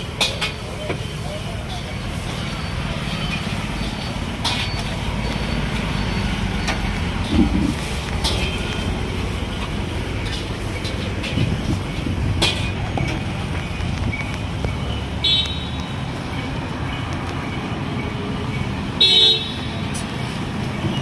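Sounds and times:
street traffic noise: 0:00.0 - 0:21.0
vehicle horn toot: 0:19.0 - 0:19.7.

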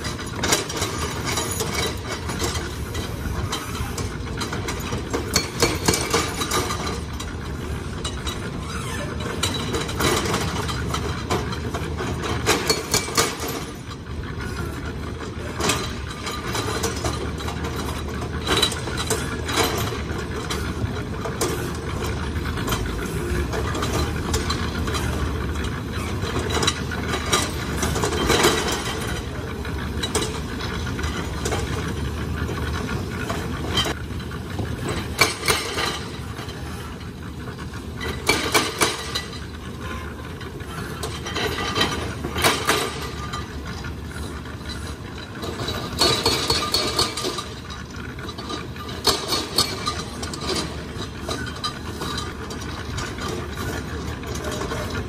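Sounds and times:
concrete mixer drum rattling: 0:00.0 - 0:55.0
excavator diesel engine: 0:00.0 - 0:55.0.

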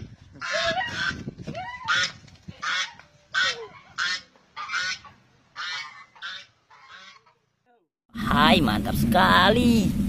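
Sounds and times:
geese honking: 0:00.4 - 0:01.2, 0:01.9 - 0:07.4.

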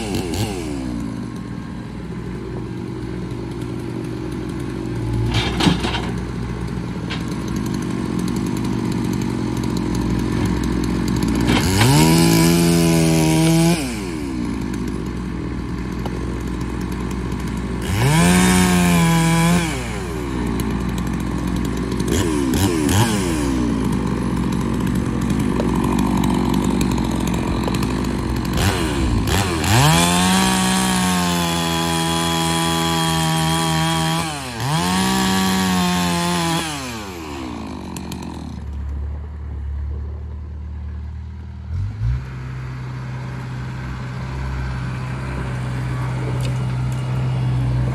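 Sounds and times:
chainsaw revving: 0:00.0 - 0:39.0, 0:41.6 - 0:47.9
loader engine idling: 0:00.3 - 0:12.2, 0:14.0 - 0:31.2, 0:37.4 - 0:47.9.

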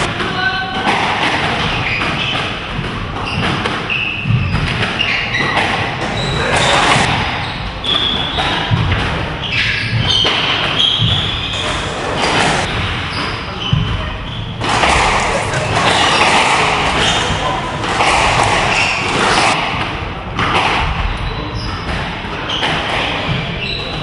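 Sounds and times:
squash ball hitting rackets and walls: 0:00.0 - 0:24.0
shoes squeaking on wooden floor: 0:01.6 - 0:19.6.

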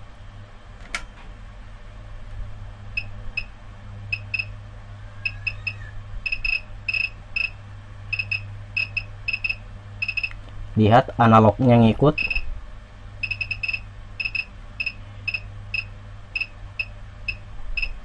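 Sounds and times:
steady low hum: 0:00.0 - 0:18.0
short high beeps: 0:04.1 - 0:04.5, 0:05.2 - 0:10.4, 0:12.2 - 0:12.4, 0:13.2 - 0:17.9.

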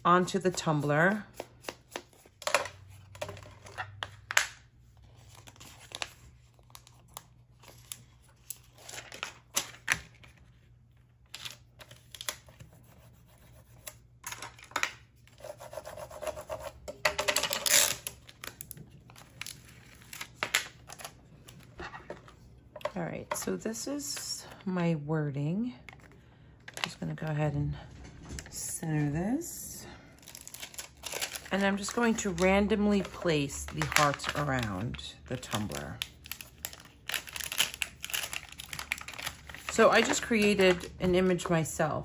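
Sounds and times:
plastic film crinkling and clicking: 0:17.3 - 0:23.4, 0:30.2 - 0:41.0.

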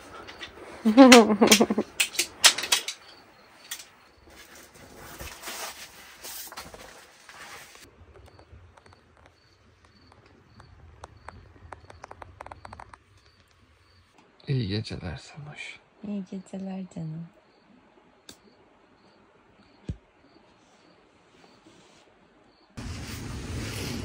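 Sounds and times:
people rustling in bedding: 0:04.2 - 0:07.9, 0:22.8 - 0:24.0.

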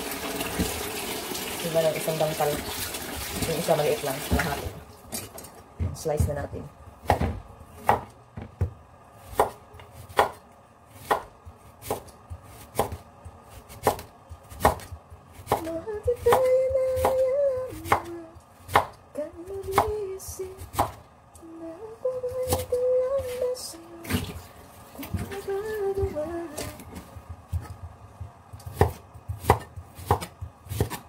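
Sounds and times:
woman humming: 0:21.4 - 0:24.3, 0:25.0 - 0:26.9
knife slicing sweet potato: 0:28.6 - 0:31.0.

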